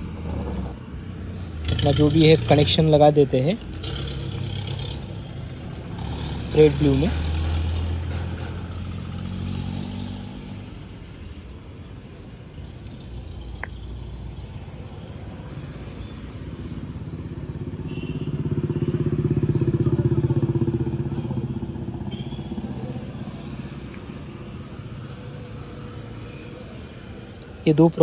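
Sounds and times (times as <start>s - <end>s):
passing vehicle engine: 0.0s - 11.0s.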